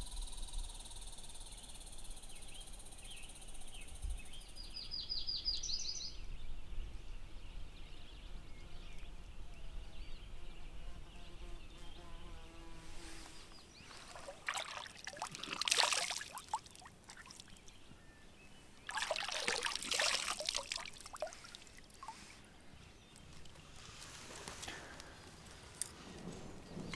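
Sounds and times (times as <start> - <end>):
water splashing onto a face: 14.0 - 17.7, 18.9 - 22.3
water dripping and trickling: 14.0 - 17.8, 18.8 - 22.4.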